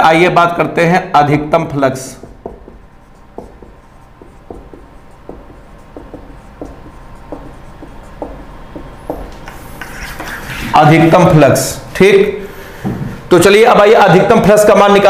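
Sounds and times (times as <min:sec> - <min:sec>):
marker pen writing on whiteboard: 0:02.0 - 0:11.7.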